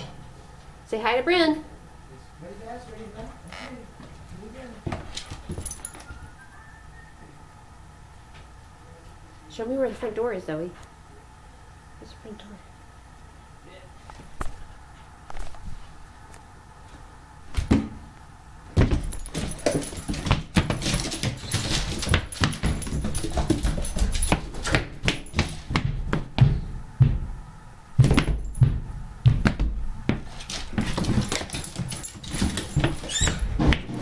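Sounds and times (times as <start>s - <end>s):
collar tags jingling: 5.2s - 6.2s, 18.9s - 25.7s, 30.4s - 33.6s
dog pawing at door: 18.8s - 26.5s, 29.3s - 34.0s
dog claws clicking on wood floor: 18.9s - 25.9s, 30.1s - 34.0s.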